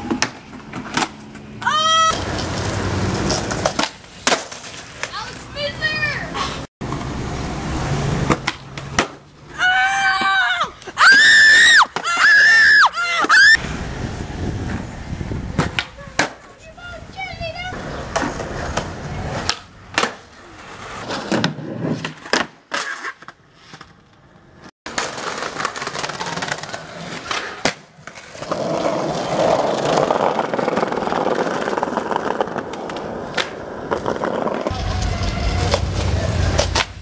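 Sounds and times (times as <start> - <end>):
skateboard clacking on ground: 0.0 - 5.5, 15.5 - 16.7, 21.3 - 37.0
skateboard wheels rolling on concrete: 0.0 - 37.0.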